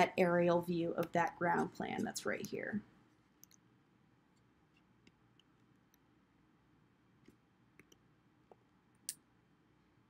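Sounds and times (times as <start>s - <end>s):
computer mouse clicks: 3.4s - 3.7s, 7.2s - 9.3s.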